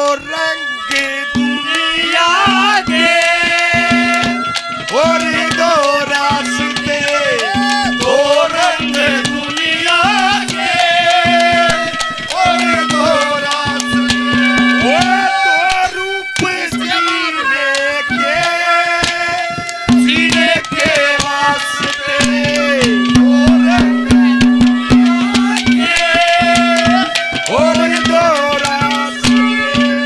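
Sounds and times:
hand drum strokes: 0.4 - 30.0.

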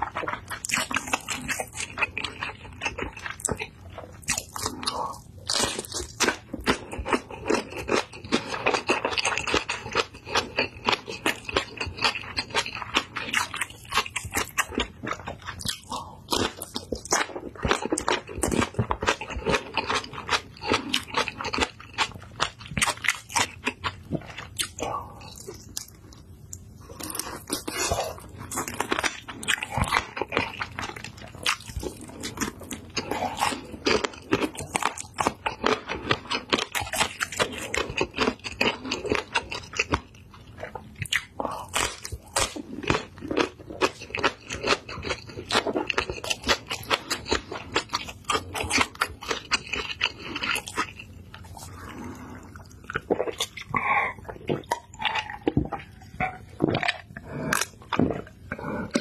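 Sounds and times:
crunching and chewing chili pepper: 0.0 - 59.0
wet mouth sounds: 40.6 - 59.0.

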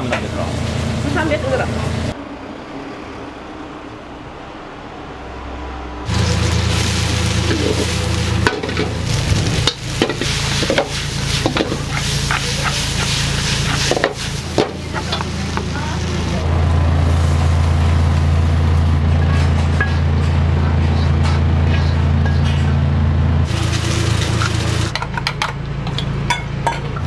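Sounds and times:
kitchen equipment hum: 4.9 - 27.0
pasta sizzling in a frying pan: 6.1 - 18.9, 23.5 - 24.9
metal pan and utensil clanks: 24.4 - 27.0.

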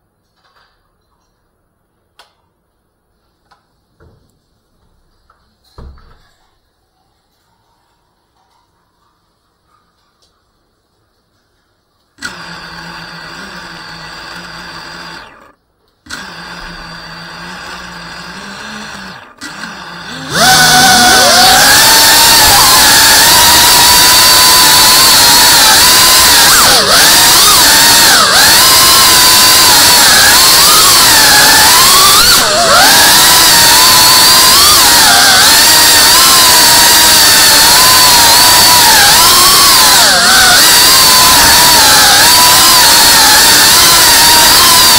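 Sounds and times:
small drone motors whining: 12.2 - 44.9.

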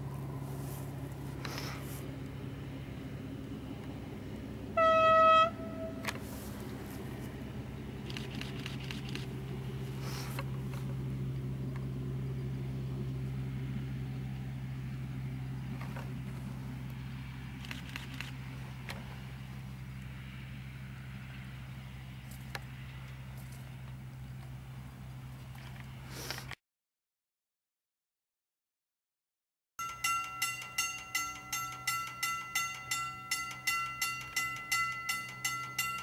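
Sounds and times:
diesel engine drone: 0.0 - 26.6, 29.8 - 36.0
train horn toot: 4.7 - 6.3.

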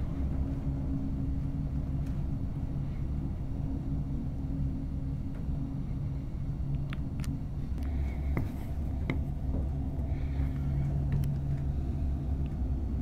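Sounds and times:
vehicle engines rumbling: 4.9 - 13.0.

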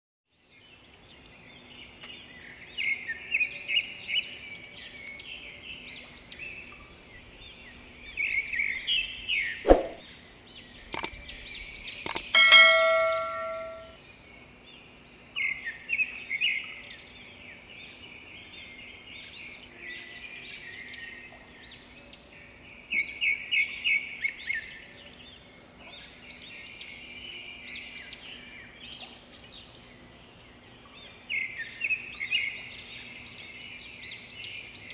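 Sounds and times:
small birds chirping: 0.4 - 34.9
loud metallic clang: 12.3 - 13.9.

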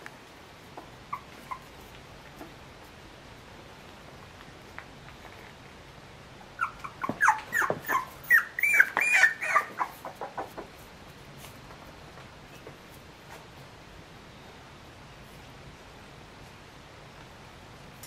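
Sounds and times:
puppy crying: 1.1 - 1.8, 6.6 - 10.5.

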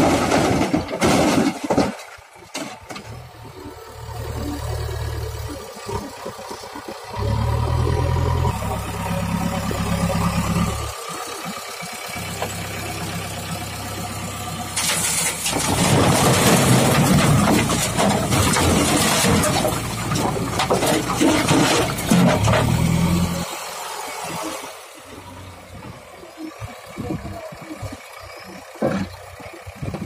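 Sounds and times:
stones clattering onto metal bed: 0.0 - 3.2, 14.8 - 22.8
diesel engines running: 0.0 - 30.0.

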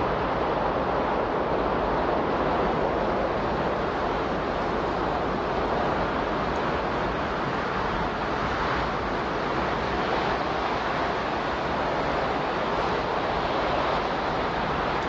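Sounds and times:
steady rushing noise: 0.0 - 15.0.

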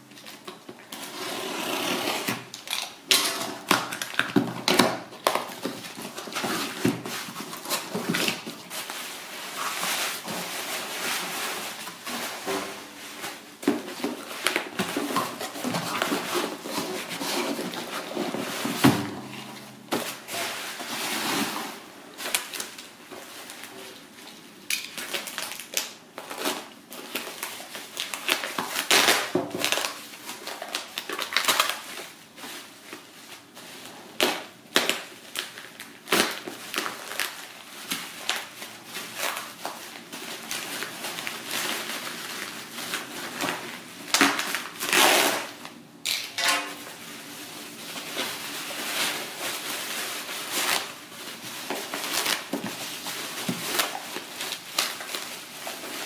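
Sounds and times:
bubble wrap crinkling: 0.0 - 56.0.

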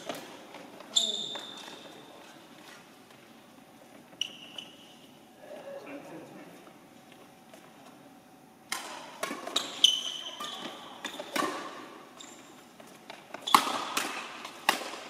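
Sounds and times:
shoe squeaks: 0.9 - 2.8, 4.1 - 5.1, 9.6 - 11.3, 12.2 - 12.6
racket hitting shuttlecock: 8.7 - 9.8, 10.4 - 11.9, 13.1 - 15.0.

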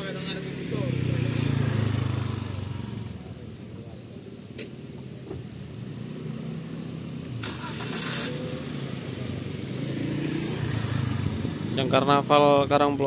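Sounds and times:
engine low rumble: 0.0 - 13.0
burst of hiss: 7.4 - 8.7.

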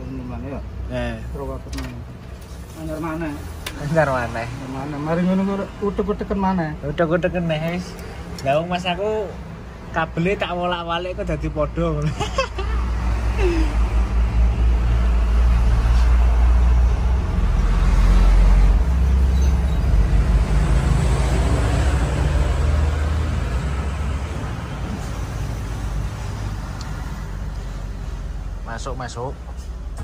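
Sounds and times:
vehicle engine passing: 12.8 - 29.2.

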